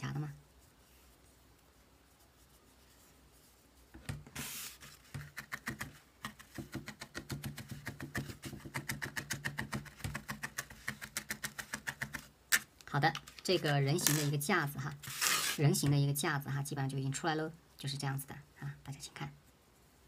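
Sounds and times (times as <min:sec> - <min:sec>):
felting needle poking foam: 0:02.2 - 0:16.1.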